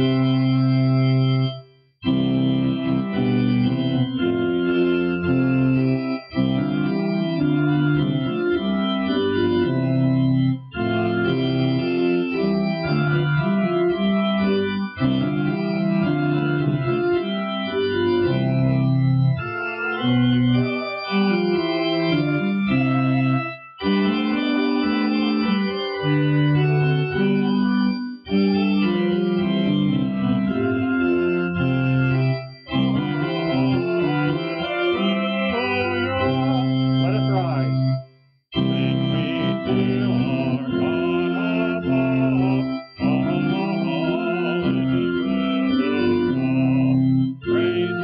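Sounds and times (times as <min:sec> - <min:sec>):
church organ playing hymn: 0:00.0 - 0:48.0.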